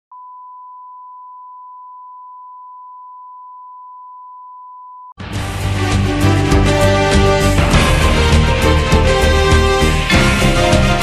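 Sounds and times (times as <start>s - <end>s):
theme music: 5.2s - 11.0s.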